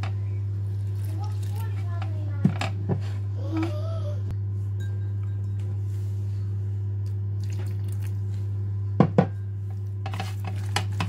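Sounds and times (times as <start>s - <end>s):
steady low hum: 0.0s - 11.0s
knocks on a glass bowl: 9.0s - 9.4s.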